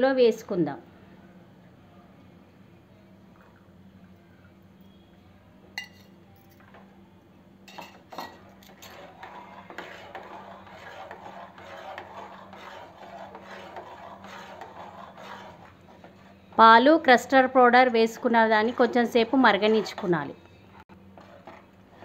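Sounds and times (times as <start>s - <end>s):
sharp clink of metal on pot: 5.8s - 6.1s
spoon scraping a metal pot: 7.7s - 22.0s.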